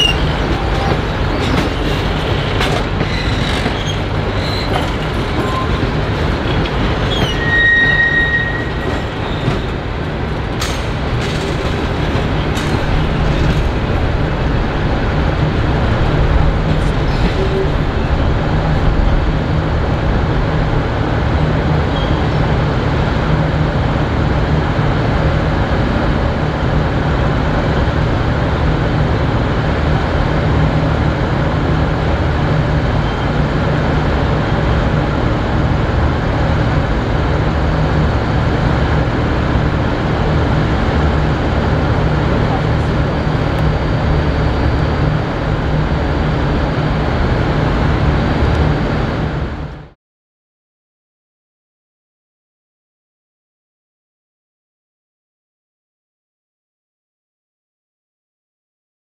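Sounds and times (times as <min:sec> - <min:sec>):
train rumbling: 0:00.0 - 0:50.0
wheel squeal: 0:03.0 - 0:05.9, 0:07.0 - 0:09.7.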